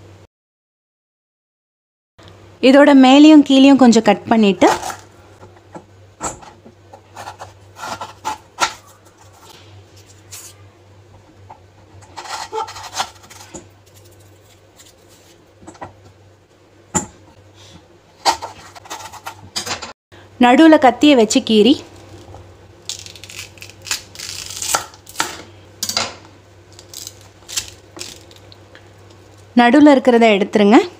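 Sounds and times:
knife scraping on cutting board: 0:07.0 - 0:10.6, 0:11.8 - 0:15.4, 0:18.2 - 0:19.4.

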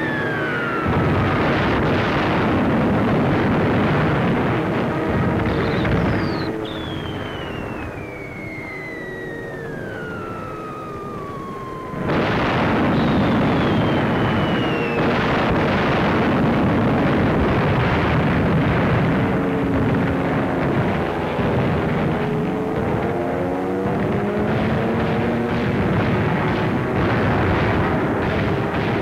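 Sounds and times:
loud explosion: 0:00.0 - 0:09.2, 0:11.7 - 0:22.2
falling bombs whistling: 0:00.0 - 0:20.2
rumbling blasts: 0:00.0 - 0:29.0.

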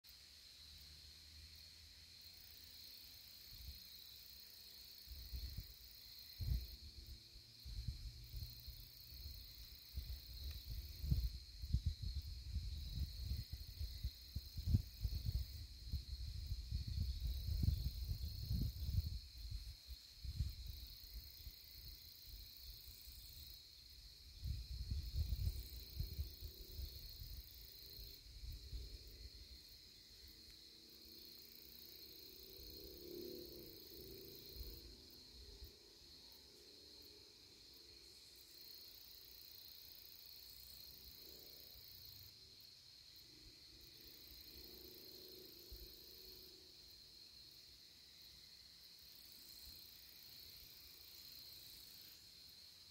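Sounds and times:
high-pitched insect chorus: 0:00.1 - 0:52.9
low rumble on microphone: 0:10.0 - 0:20.7, 0:24.3 - 0:27.4.

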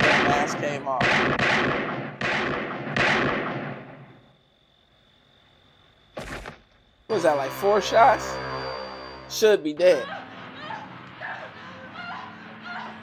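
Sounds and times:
handgun shots echoing: 0:00.0 - 0:03.9.

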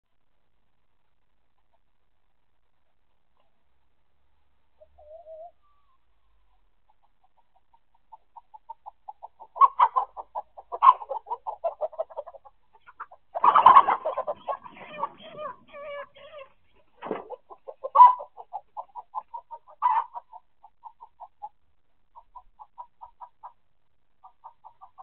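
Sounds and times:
chickens alarm clucking: 0:04.7 - 0:25.0
chickens squawking: 0:04.8 - 0:23.6, 0:24.2 - 0:25.0.

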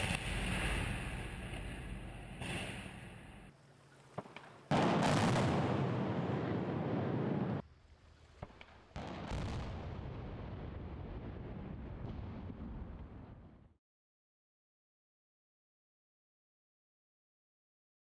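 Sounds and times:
demolition blast: 0:00.0 - 0:03.5, 0:04.7 - 0:07.6
sharp explosive cracks: 0:00.0 - 0:03.5, 0:04.2 - 0:07.6.

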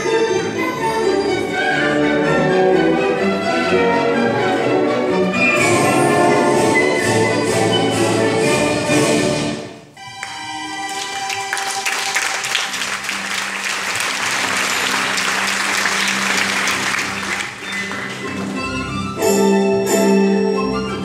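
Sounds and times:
recorded orchestral music: 0:00.0 - 0:21.0
audience applauding: 0:10.1 - 0:19.1.

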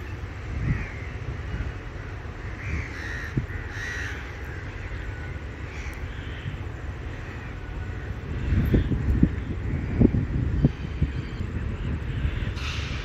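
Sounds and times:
steady low rumble: 0:00.0 - 0:13.0
crows cawing: 0:00.6 - 0:09.0.

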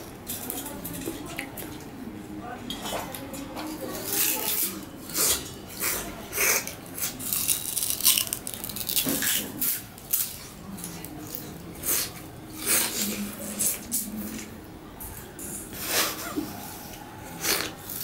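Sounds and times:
sugarcane crunching being chewed: 0:04.1 - 0:14.6, 0:17.3 - 0:18.0
rind torn by teeth: 0:06.4 - 0:10.5.

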